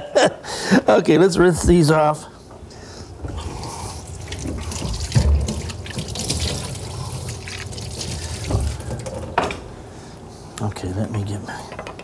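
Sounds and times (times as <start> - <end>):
fish rinsed under water: 3.2 - 9.3
kitchen tap running: 3.2 - 9.5.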